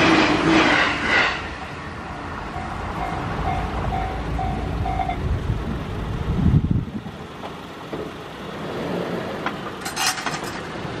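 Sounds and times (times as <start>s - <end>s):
low train rumble: 0.0s - 11.0s
level crossing warning bell: 2.1s - 5.2s.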